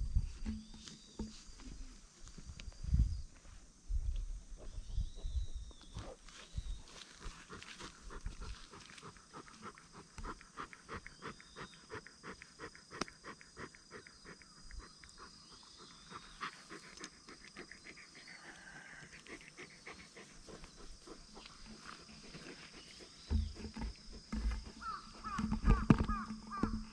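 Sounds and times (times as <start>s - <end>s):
dog panting: 7.2s - 23.8s.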